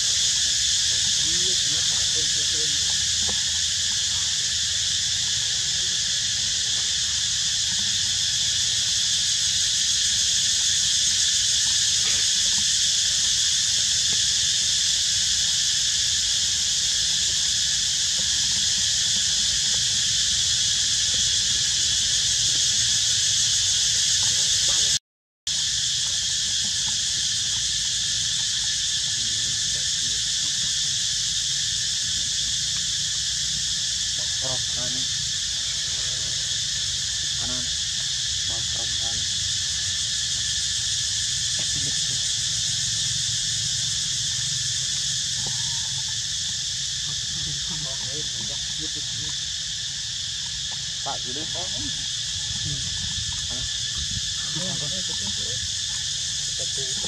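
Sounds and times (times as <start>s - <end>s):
insect chorus droning: 0.0s - 57.0s.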